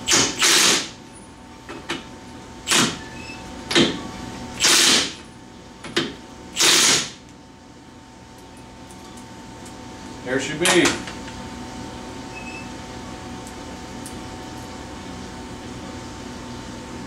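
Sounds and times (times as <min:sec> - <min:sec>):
impact wrench hammering: 0:04.6 - 0:05.2, 0:06.0 - 0:07.2.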